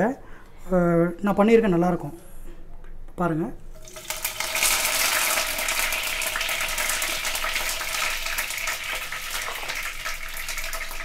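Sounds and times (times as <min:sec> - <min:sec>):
leaves sizzling in hot oil: 0:03.8 - 0:11.0.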